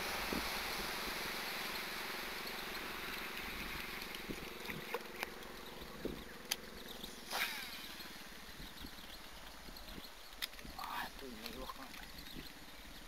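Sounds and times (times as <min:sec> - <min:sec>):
wind hiss on microphone: 0:00.0 - 0:05.1, 0:07.2 - 0:13.0
faint steady hum: 0:00.0 - 0:13.0
sharp clicks: 0:08.8 - 0:12.6.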